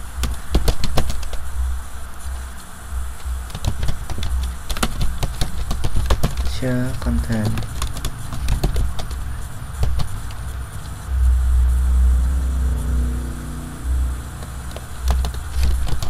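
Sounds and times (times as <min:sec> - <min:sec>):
keyboard keys clicking: 0:00.2 - 0:01.4, 0:03.5 - 0:10.4, 0:14.4 - 0:16.0
loud low rumble: 0:09.2 - 0:15.5.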